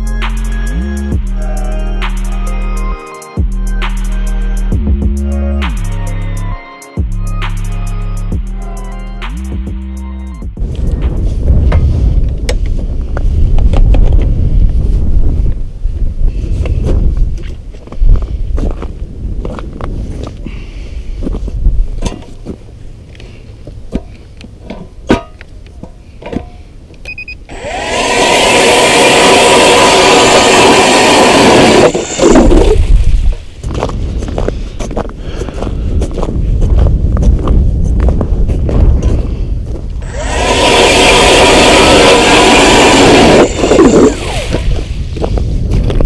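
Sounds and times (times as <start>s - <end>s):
short beep: 27.1s - 27.4s
ice auger motor whining: 27.5s - 33.0s, 40.0s - 45.2s.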